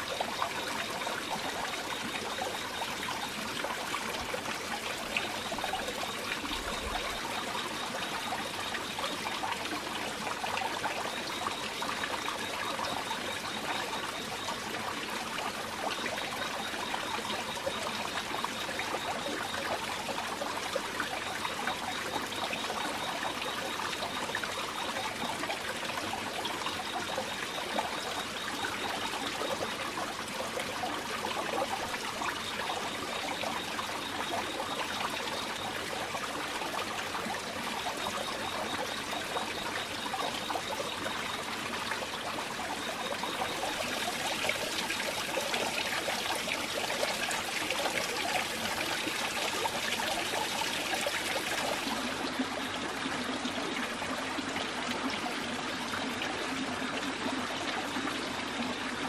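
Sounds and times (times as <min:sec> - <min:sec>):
water splashing into pond: 0:00.0 - 0:59.0.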